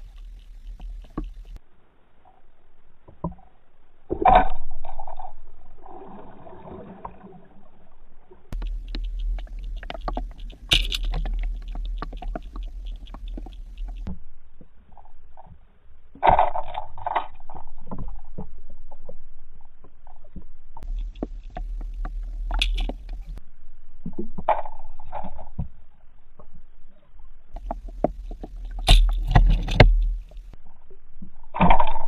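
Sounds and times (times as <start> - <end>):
muffled underwater sounds: 0.0 - 1.6, 4.0 - 23.4
small clicks and scrapes: 0.0 - 1.6, 8.5 - 14.2, 19.9 - 23.4, 27.5 - 30.6
low rumble: 4.7 - 16.1, 17.5 - 24.0, 27.5 - 31.6.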